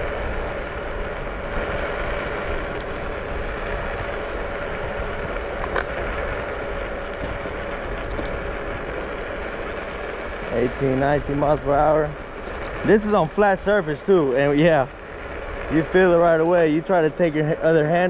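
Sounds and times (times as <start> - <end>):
faint steady hum: 0.0 - 18.0
tyre rumble on asphalt: 0.0 - 18.0
wind buffeting microphone: 0.0 - 18.0.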